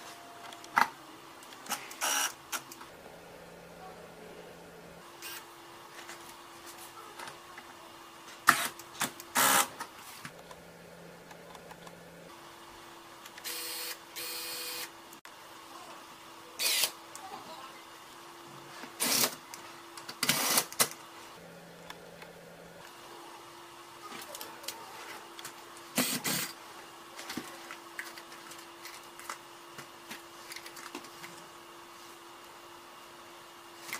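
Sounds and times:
faint steady hum: 0.0 - 8.2, 9.1 - 15.6, 21.2 - 26.5
electric screwdriver humming: 1.9 - 2.4, 9.3 - 9.7, 10.3 - 12.3, 13.4 - 14.9, 16.6 - 16.9.

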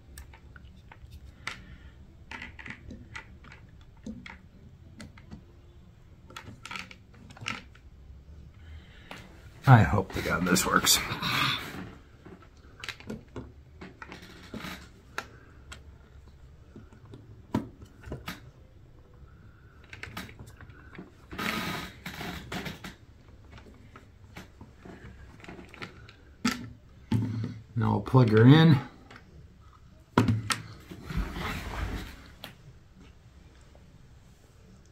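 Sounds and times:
plastic bricks clicking together: 2.3 - 4.4, 6.3 - 7.8.

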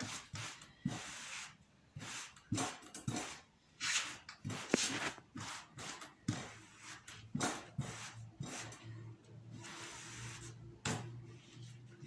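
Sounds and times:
iron swishing across fabric: 0.0 - 12.0.

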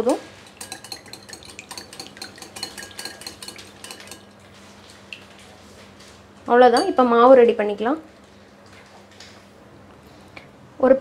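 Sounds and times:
whisk clicking against glass bowl: 0.4 - 4.4.

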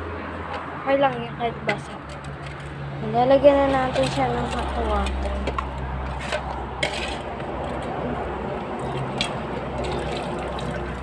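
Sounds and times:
hot water pouring into pot: 9.8 - 11.0.

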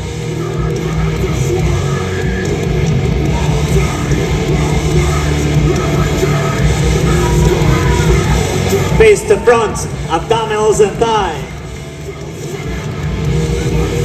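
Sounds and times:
heavy rock music with electric guitar: 0.0 - 14.0.

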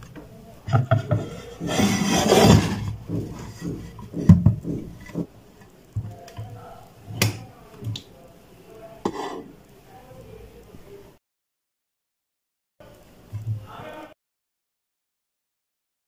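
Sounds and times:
glass and plastic knocking on table: 0.7 - 5.3
rustling scrape: 1.0 - 5.3.

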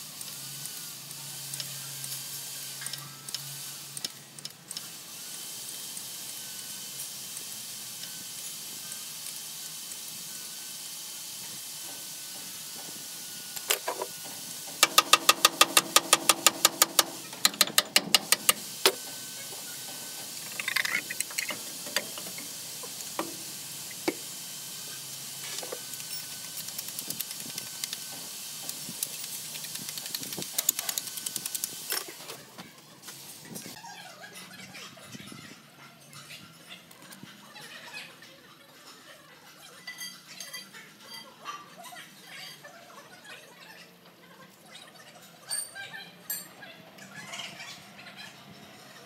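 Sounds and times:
steady hiss: 0.0 - 32.0
ratchet wrench clicking: 13.6 - 19.0, 20.2 - 24.3, 25.4 - 32.2.

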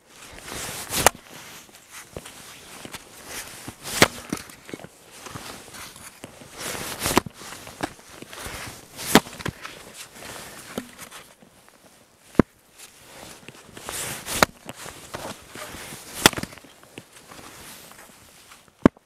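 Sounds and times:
boots crunching in snow: 0.1 - 11.2
axe splitting logs: 1.0 - 1.2, 3.9 - 4.7, 9.0 - 9.6, 10.7 - 11.2, 14.3 - 14.7, 16.2 - 16.6.

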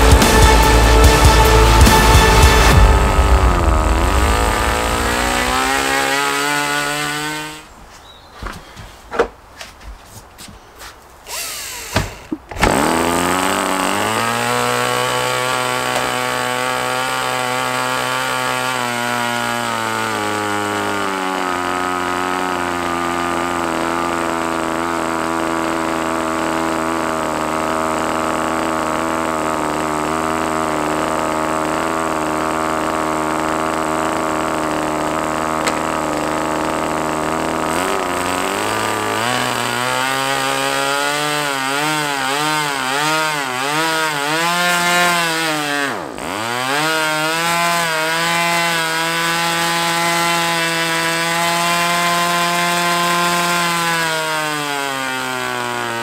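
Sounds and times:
model aircraft engine running: 0.0 - 7.2, 11.3 - 16.2, 20.4 - 40.2.

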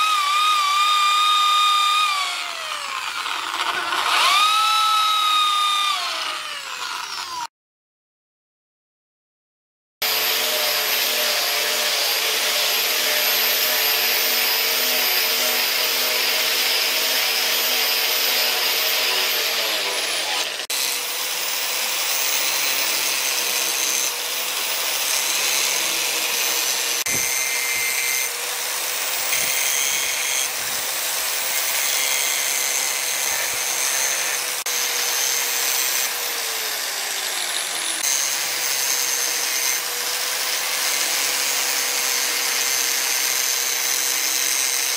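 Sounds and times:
angle grinder grinding: 0.0 - 7.5, 10.0 - 44.9.

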